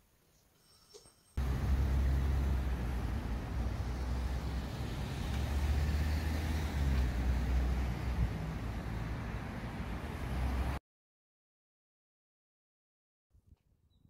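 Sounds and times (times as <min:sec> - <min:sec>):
low street rumble: 0:01.4 - 0:10.8.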